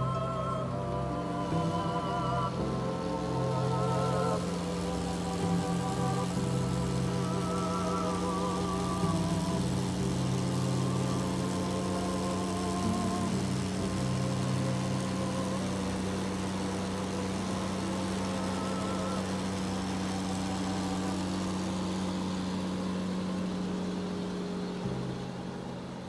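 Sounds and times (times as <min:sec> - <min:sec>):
car engine: 0:00.0 - 0:26.0
steady hum: 0:00.0 - 0:26.0.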